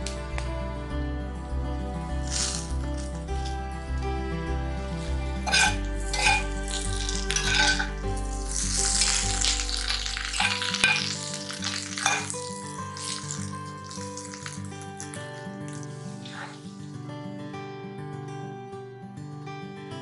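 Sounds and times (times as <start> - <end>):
background music: 0.0 - 20.0
potatoes sizzling in oil: 2.2 - 2.7, 5.5 - 16.6
spatula scraping a pan: 5.4 - 14.5, 15.7 - 16.8.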